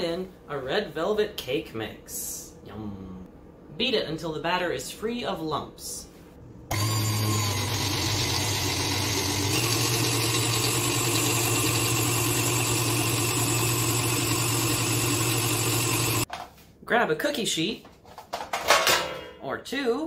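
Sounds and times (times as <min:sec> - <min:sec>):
stand mixer motor humming: 0:06.7 - 0:16.3.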